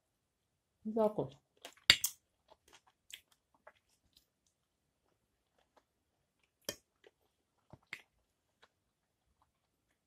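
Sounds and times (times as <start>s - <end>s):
soft chewing: 1.4s - 10.0s.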